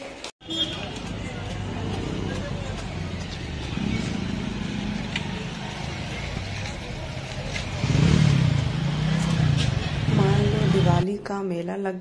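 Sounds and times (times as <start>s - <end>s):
low rumble of traffic: 0.4s - 11.4s
people talking: 0.7s - 7.8s, 10.1s - 12.0s.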